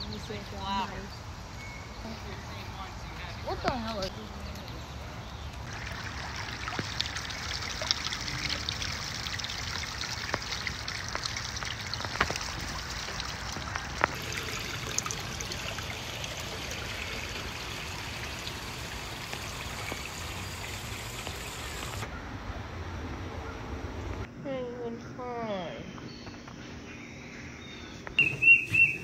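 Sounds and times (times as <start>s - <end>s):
water trickling over rock: 5.6s - 22.0s.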